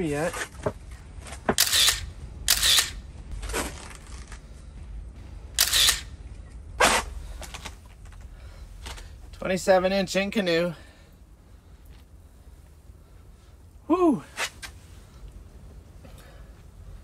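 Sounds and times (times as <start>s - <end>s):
camera shutter clicks: 1.6s - 3.0s, 5.6s - 6.1s.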